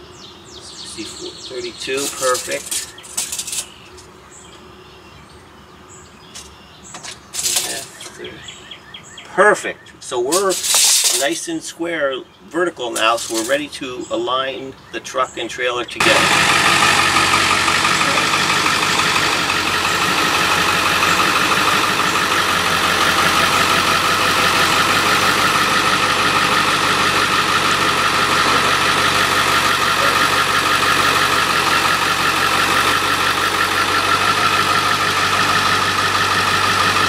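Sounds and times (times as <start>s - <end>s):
diesel pickup engine idling: 16.0s - 37.0s.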